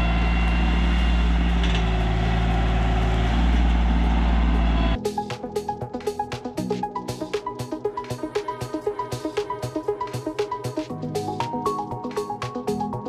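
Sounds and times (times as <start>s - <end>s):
diesel tractor engine running: 0.0s - 5.0s
music with plucked beat: 5.0s - 13.0s.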